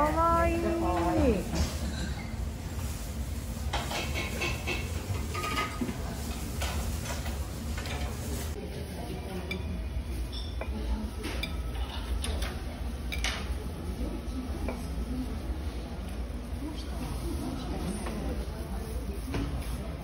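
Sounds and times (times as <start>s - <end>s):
tableware clinking: 0.9s - 2.4s, 3.7s - 5.9s, 9.4s - 11.6s.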